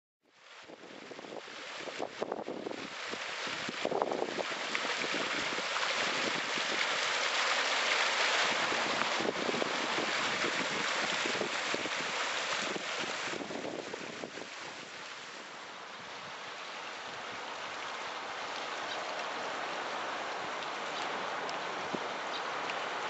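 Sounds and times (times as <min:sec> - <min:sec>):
fountain water splashing into pool: 0:00.3 - 0:15.5.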